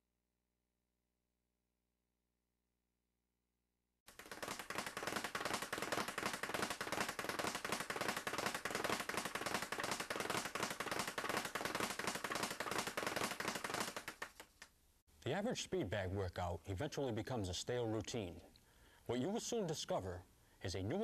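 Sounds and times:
speed bag rattling: 4.1 - 14.6.

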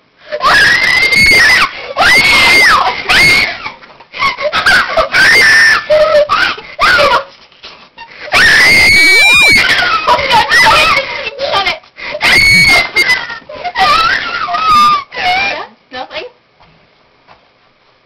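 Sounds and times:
girl screaming: 0.3 - 7.3, 8.3 - 15.7.

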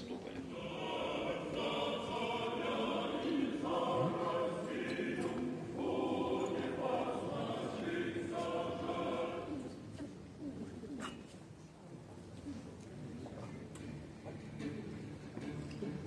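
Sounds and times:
choir singing held chords: 0.5 - 9.9.

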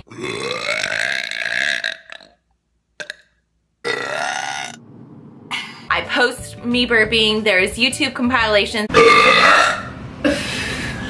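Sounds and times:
woman burping: 0.0 - 2.4, 3.0 - 4.8, 8.9 - 10.4.

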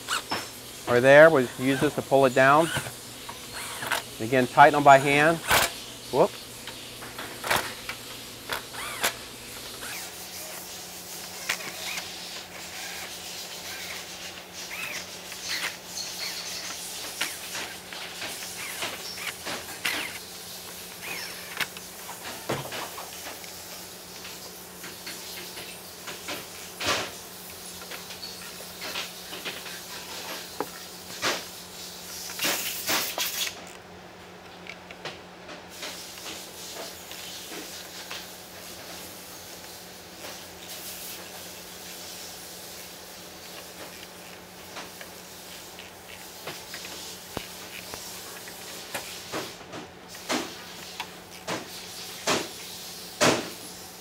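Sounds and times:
cordless drill whining: 1.3 - 4.0.

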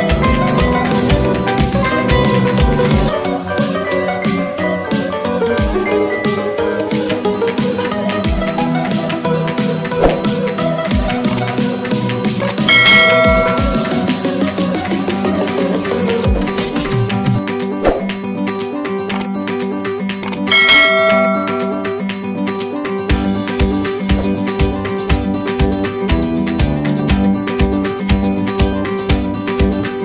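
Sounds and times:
background music: 0.0 - 30.0
notification bell ringing: 12.7 - 14.2, 20.5 - 22.0.

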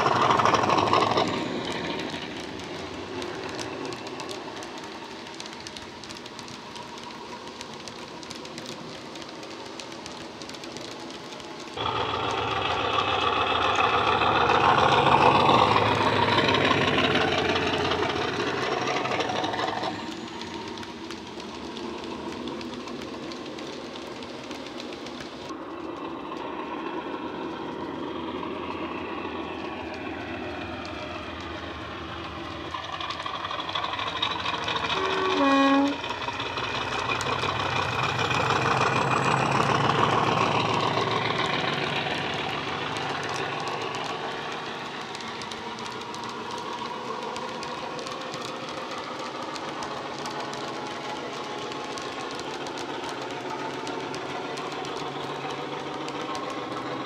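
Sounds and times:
diesel engine sound from speaker: 0.0 - 57.0
two-tone train horn: 34.9 - 36.1.

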